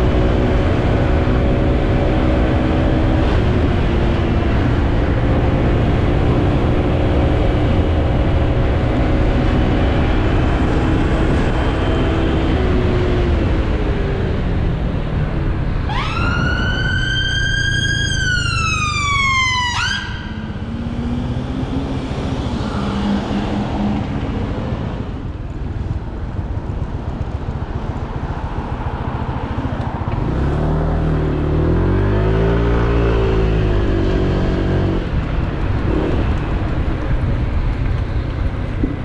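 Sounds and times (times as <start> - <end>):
wind noise: 0.0 - 19.1, 31.6 - 39.0
emergency siren wailing: 15.8 - 20.7.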